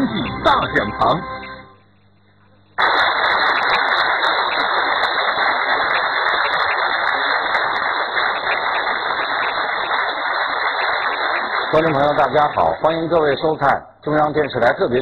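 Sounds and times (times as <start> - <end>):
audience applauding: 2.8 - 13.5.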